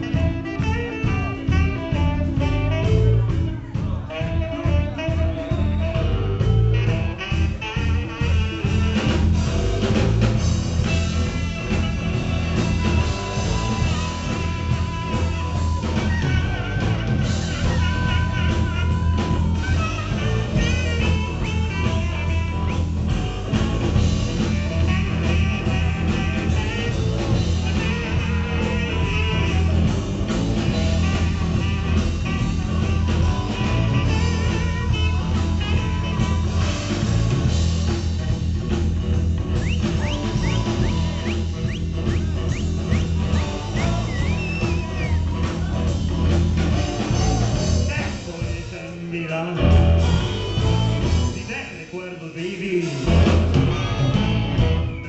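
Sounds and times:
saxophone: 0:00.0 - 0:51.5, 0:52.8 - 0:55.0
electric guitars: 0:00.0 - 0:51.7, 0:52.6 - 0:55.0
drums: 0:00.0 - 0:55.0
harmonica: 0:10.8 - 0:37.6, 0:39.4 - 0:47.9.

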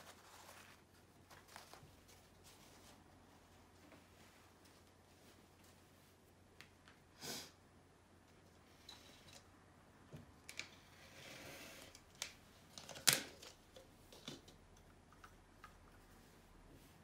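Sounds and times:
soft rustle: 0:00.0 - 0:07.0, 0:15.6 - 0:17.0
paint supplies clicking and knocking: 0:12.0 - 0:16.0.

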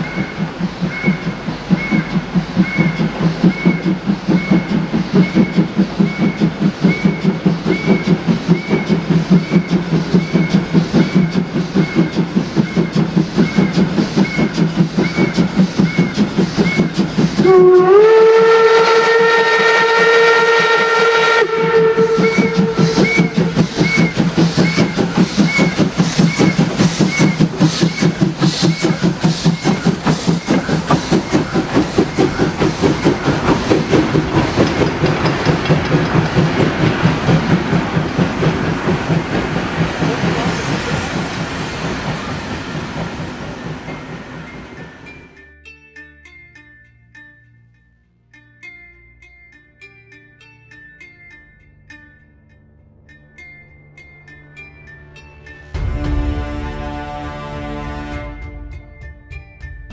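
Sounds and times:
chime steam whistle blast: 0:00.0 - 0:36.9, 0:55.5 - 0:59.9
steam locomotive exhaust chuffing: 0:00.0 - 0:45.4, 0:55.8 - 0:59.9.

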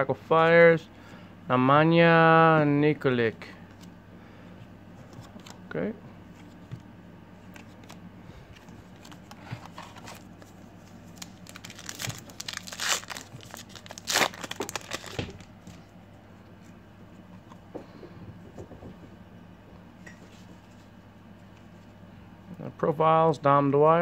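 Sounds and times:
wrapper tearing and crinkling: 0:11.0 - 0:15.5.

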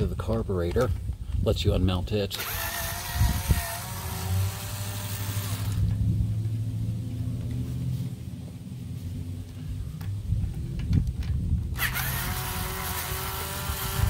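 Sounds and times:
low steady rumble: 0:00.0 - 0:14.0
cordless drill motor whine: 0:02.3 - 0:06.0, 0:11.7 - 0:14.0.

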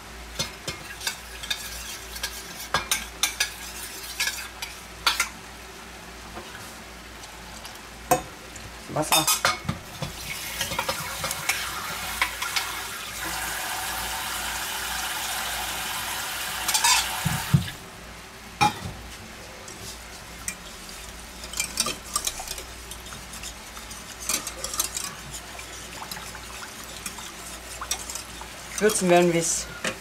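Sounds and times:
pans sizzling: 0:00.3 - 0:05.4, 0:08.0 - 0:17.9, 0:18.6 - 0:30.0
whisk clinking in metal pot: 0:00.4 - 0:05.3, 0:21.4 - 0:29.6
water running: 0:10.0 - 0:17.8, 0:20.3 - 0:29.7.

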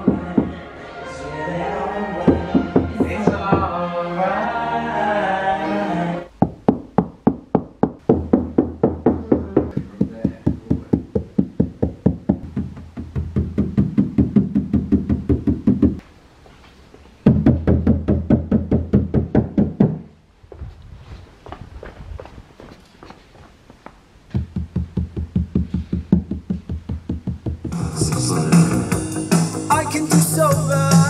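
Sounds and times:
music with beat and bass line: 0:08.2 - 0:16.0, 0:24.4 - 0:31.0.

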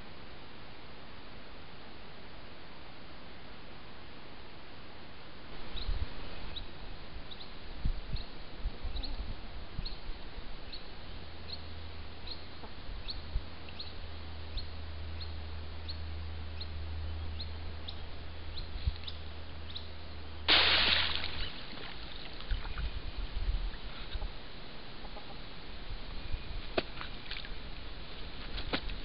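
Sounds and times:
low steady hum: 0:00.0 - 0:29.0
faint high chirp: 0:21.2 - 0:21.8.

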